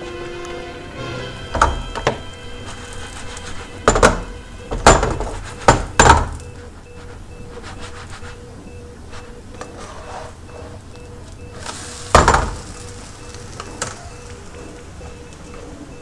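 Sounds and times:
background music: 0.0 - 5.6
frying pan clattering on hob grates: 1.4 - 6.5, 11.6 - 14.0.

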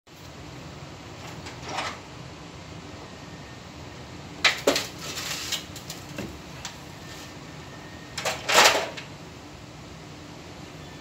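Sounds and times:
rattling clatter of clicks: 8.2 - 9.1.

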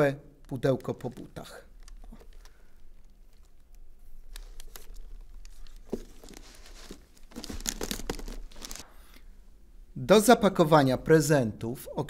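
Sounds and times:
wrapping paper crinkling: 0.4 - 8.9.

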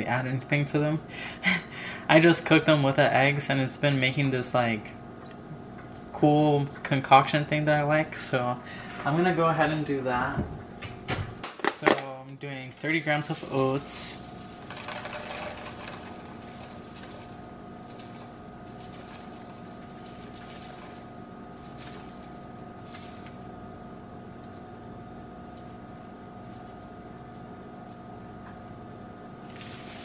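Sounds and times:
appliance hum: 0.0 - 30.0
oats rattling into plastic container: 12.8 - 23.5, 25.5 - 27.0.

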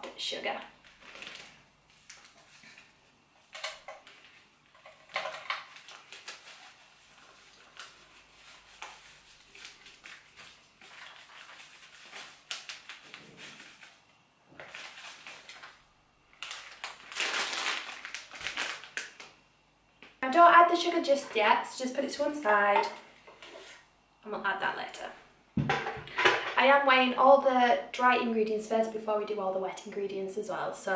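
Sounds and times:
plastic packet crinkling: 0.8 - 2.9, 3.5 - 19.4.

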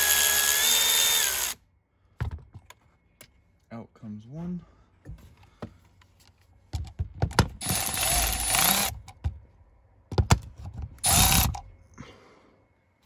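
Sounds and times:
cordless power tool running: 0.0 - 1.6, 7.6 - 8.9, 11.0 - 11.6.

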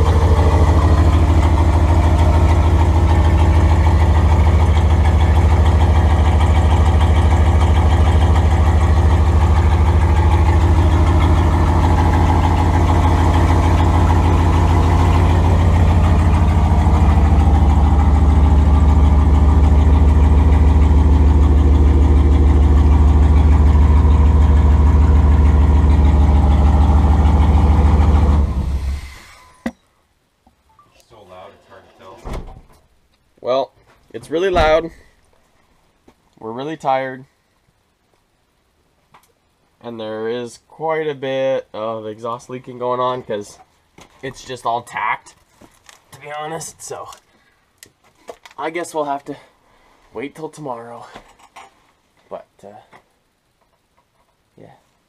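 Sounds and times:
loud engine idling: 0.0 - 29.6
exhaust leaking: 0.0 - 29.7.

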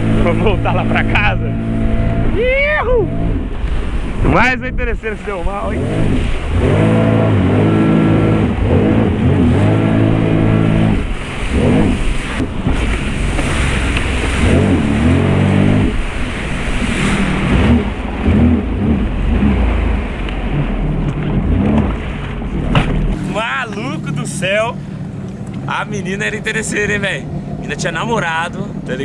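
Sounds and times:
jet ski engine revving: 0.0 - 29.0
wind: 0.0 - 29.0
water spray rushing: 5.0 - 20.3.

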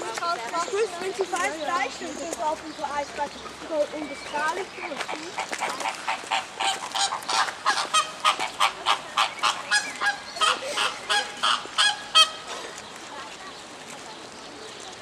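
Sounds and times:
flamingos honking: 5.2 - 12.7.

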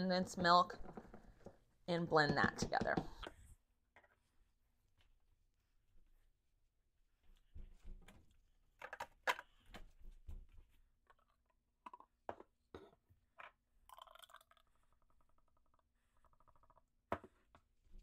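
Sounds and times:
plastic cup knocks and clinks: 2.2 - 3.3.

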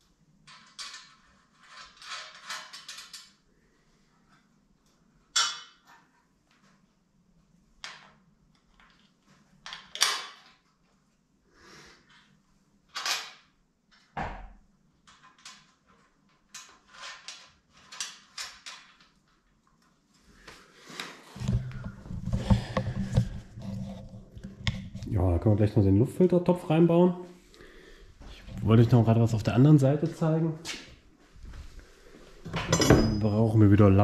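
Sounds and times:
tools and washers clinking on metal: 0.4 - 3.4, 5.3 - 6.1, 7.8 - 10.6, 12.9 - 14.2, 15.0 - 19.5, 32.4 - 33.5.

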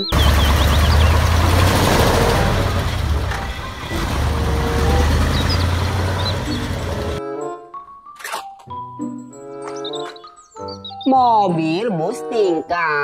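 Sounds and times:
truck diesel engine rumbling: 0.0 - 7.2.

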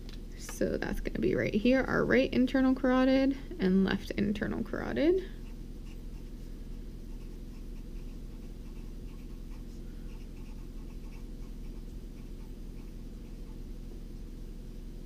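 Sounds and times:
steady low hum: 0.0 - 15.0
felt-tip marker writing on paper: 7.1 - 13.6.

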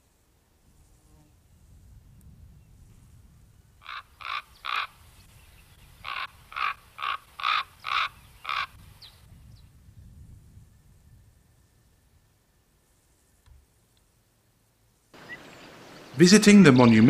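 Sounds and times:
crow cawing: 3.8 - 4.9, 6.0 - 8.8.

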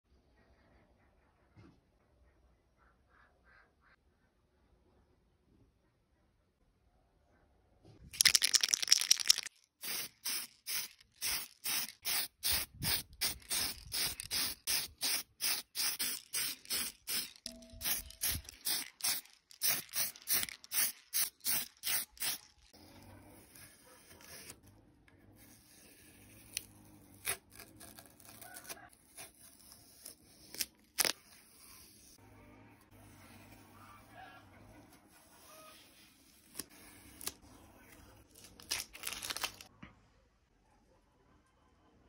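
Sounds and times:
spray can ball rattling: 8.1 - 22.7
spray paint puffs: 8.2 - 22.7.

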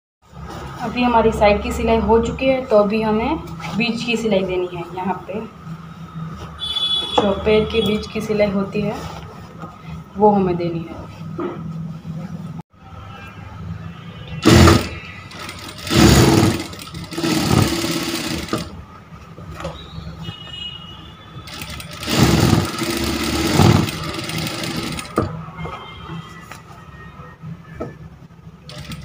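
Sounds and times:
sewing machine stitching: 14.4 - 18.8, 21.5 - 25.3, 28.7 - 29.0.

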